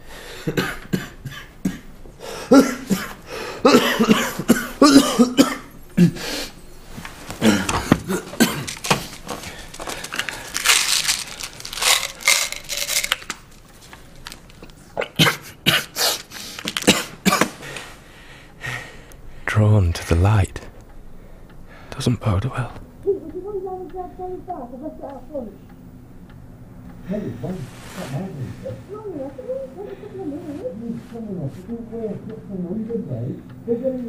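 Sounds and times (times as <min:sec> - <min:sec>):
man coughing: 0:00.4 - 0:06.3, 0:07.4 - 0:08.9, 0:15.0 - 0:16.2, 0:16.8 - 0:17.6.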